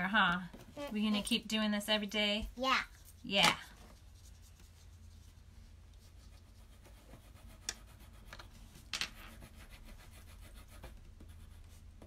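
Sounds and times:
pencils scratching on paper: 3.0 - 12.0.

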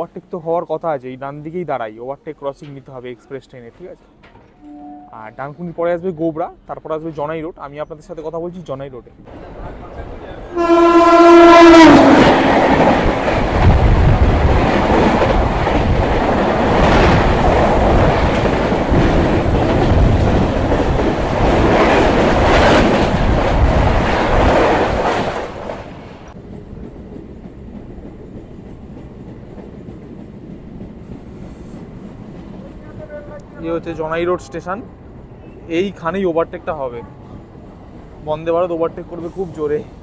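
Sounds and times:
locomotive horn: 4.6 - 5.5, 10.5 - 12.9
train running steadily: 9.2 - 40.0
train wheels rattling and clattering: 12.0 - 33.3.

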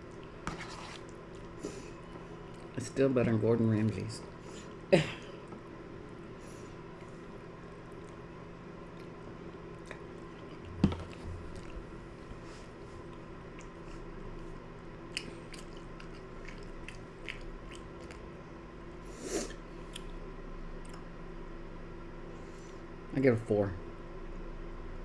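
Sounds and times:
person chewing noodles: 0.0 - 2.8, 4.2 - 14.2, 15.0 - 18.4, 19.4 - 20.2, 20.8 - 21.1.

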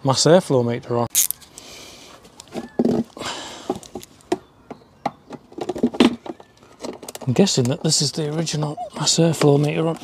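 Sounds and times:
plastic box handling noise: 2.2 - 8.0.

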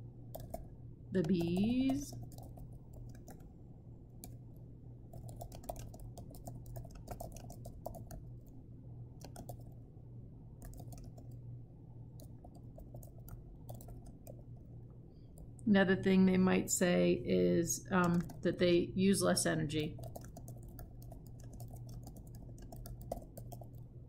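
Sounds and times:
steady low hum: 0.0 - 24.0
keyboard typing clicks: 0.3 - 3.5, 4.2 - 4.4, 5.1 - 8.6, 9.2 - 9.8, 10.6 - 11.4, 12.2 - 14.6, 18.0 - 18.4, 19.8 - 23.9.

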